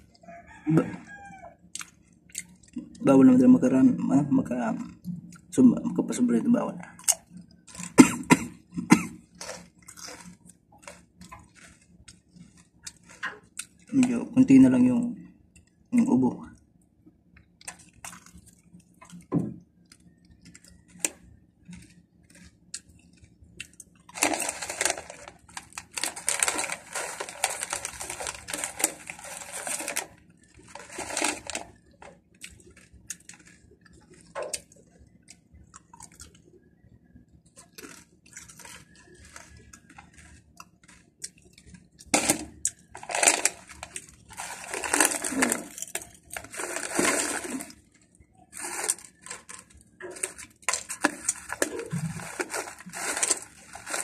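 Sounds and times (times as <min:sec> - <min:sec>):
crunchy chips being chewed: 0:00.0 - 0:03.8, 0:06.9 - 0:15.0, 0:17.4 - 0:36.6, 0:37.4 - 0:54.0
foil snack bag crinkling: 0:07.2 - 0:08.0, 0:08.8 - 0:15.0, 0:20.4 - 0:34.7, 0:37.6 - 0:54.0.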